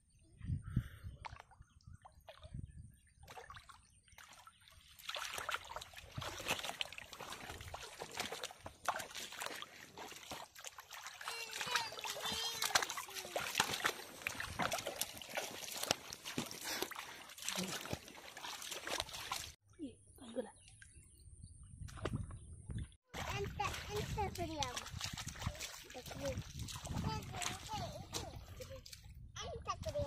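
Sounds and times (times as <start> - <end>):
hands splashing in water: 3.2 - 19.6, 23.1 - 29.0
water dripping: 3.3 - 19.6, 23.2 - 29.0.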